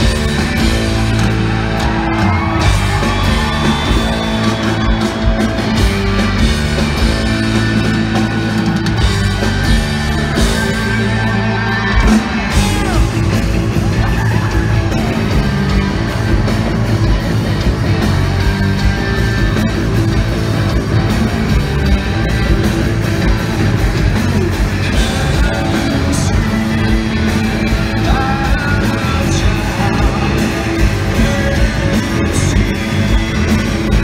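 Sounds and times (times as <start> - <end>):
live rock band playing: 0.0 - 34.0
person yelling over music: 8.0 - 13.3.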